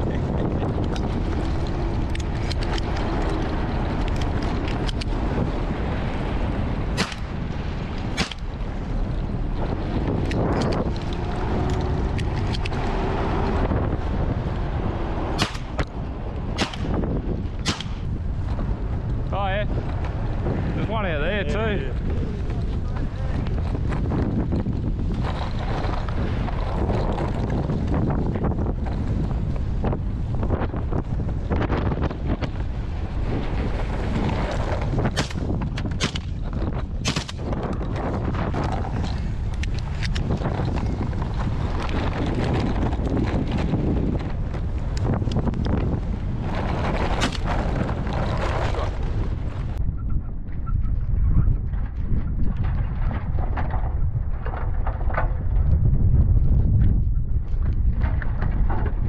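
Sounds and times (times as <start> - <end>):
engine rumble: 0.0 - 50.0
wind noise on microphone: 0.0 - 59.0
shotgun shots: 7.0 - 7.4, 8.1 - 8.5, 15.4 - 15.8, 16.6 - 17.0, 17.6 - 18.0, 37.0 - 37.5.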